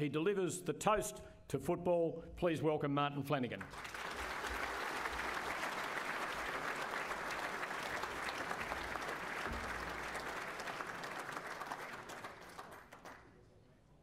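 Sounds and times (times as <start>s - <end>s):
audience applauding: 3.6s - 13.3s.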